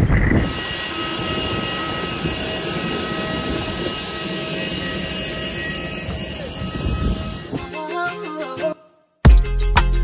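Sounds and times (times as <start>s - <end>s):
auxiliary power unit whine: 0.0s - 7.7s.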